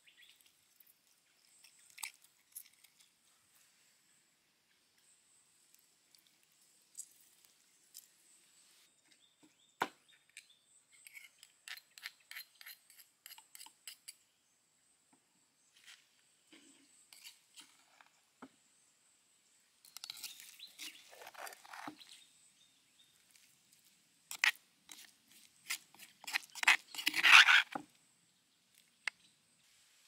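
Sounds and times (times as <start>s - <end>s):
metal spoon scraping stone mortar: 11.0s - 14.2s, 17.1s - 18.0s, 19.8s - 22.2s, 24.3s - 27.8s.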